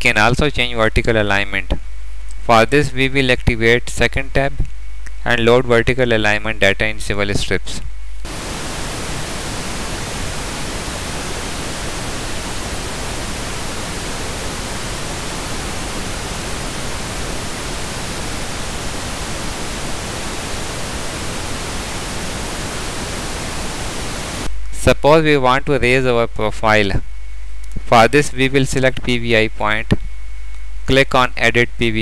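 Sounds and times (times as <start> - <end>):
static hiss: 7.2 - 25.0.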